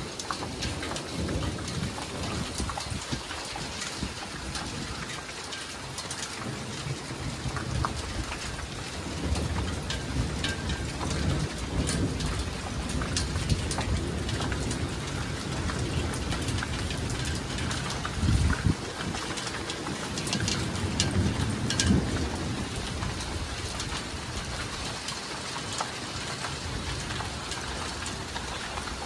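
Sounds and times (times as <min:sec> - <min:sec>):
rain pattering hard: 0:00.0 - 0:29.0
low thunder rumble: 0:00.4 - 0:05.1, 0:06.4 - 0:25.0.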